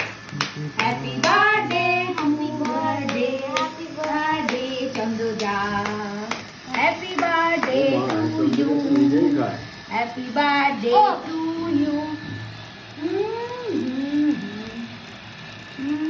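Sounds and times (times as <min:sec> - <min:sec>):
rhythmic hand clapping: 0:00.0 - 0:09.5
people singing together: 0:00.4 - 0:10.9.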